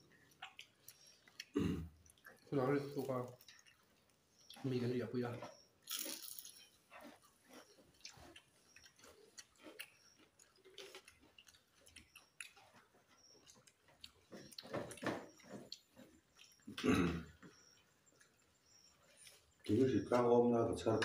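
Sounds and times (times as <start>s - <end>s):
people chewing: 0.0s - 21.0s.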